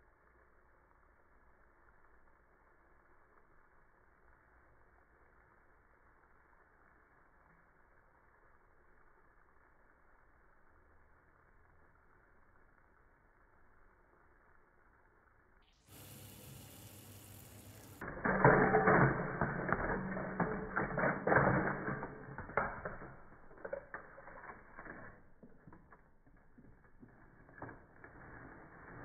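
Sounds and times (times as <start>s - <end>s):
brief steady hiss: 15.9s - 18.0s
chips rattling into glass bowl: 16.8s - 26.0s.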